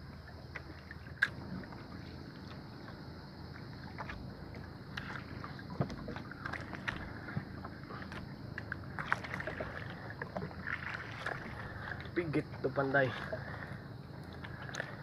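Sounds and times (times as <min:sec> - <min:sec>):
sea water washing around boat: 0:00.0 - 0:15.0
wind: 0:00.0 - 0:15.0.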